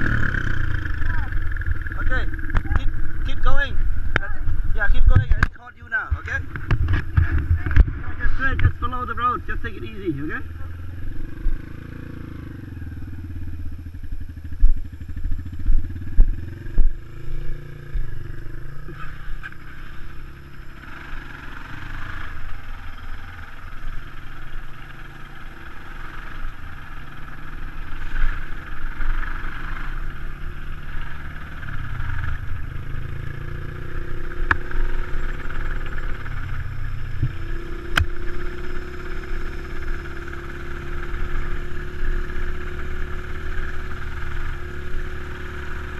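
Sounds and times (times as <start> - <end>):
dirt bike engines running: 0.0 - 45.9
thumps on the microphone: 5.0 - 8.8.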